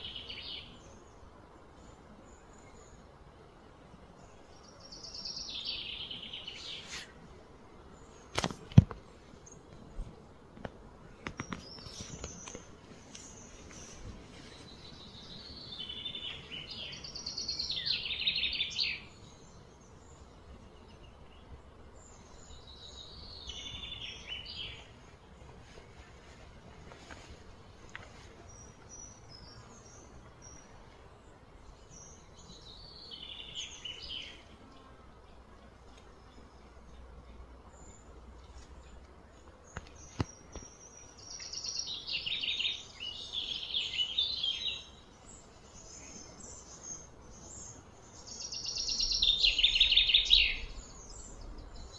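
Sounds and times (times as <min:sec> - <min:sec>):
outdoor background hum: 0:00.0 - 0:51.9
songbird trilling: 0:48.3 - 0:51.9.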